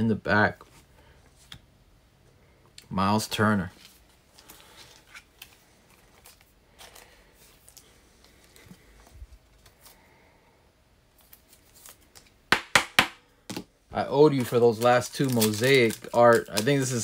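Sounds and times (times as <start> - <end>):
trading cards clicking and rustling: 14.2 - 17.0.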